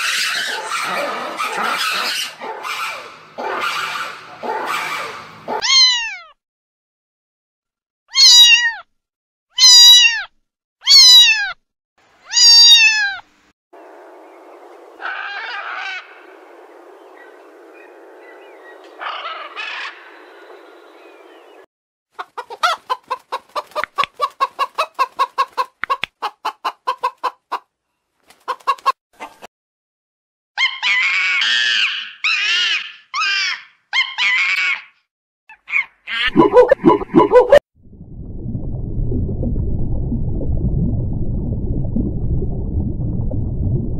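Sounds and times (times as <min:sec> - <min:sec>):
macaw squawks: 0:00.0 - 0:05.9, 0:19.0 - 0:20.0, 0:30.6 - 0:36.6
lemur meow calls: 0:08.1 - 0:08.9, 0:09.6 - 0:11.6, 0:12.2 - 0:13.2.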